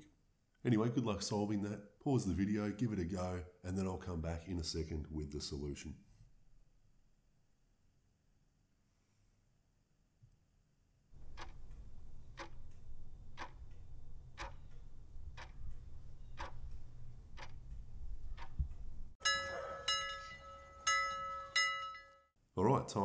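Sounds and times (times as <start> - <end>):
clock ticking: 11.2 - 19.2
bell chime: 19.2 - 22.3.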